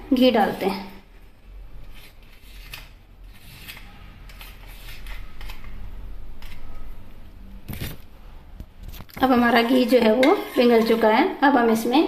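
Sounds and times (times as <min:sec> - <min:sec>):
spoon scraping plastic tub: 0:08.9 - 0:11.9.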